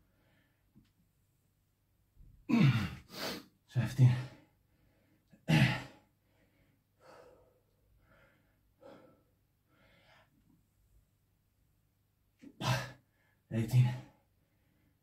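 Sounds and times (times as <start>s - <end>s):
man breathing hard: 4.2s - 10.4s.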